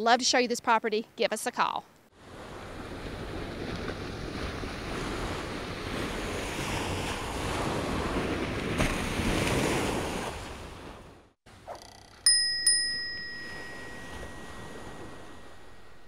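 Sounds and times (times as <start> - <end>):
surf washing on beach: 2.2 - 11.0
wind on microphone: 2.3 - 11.2.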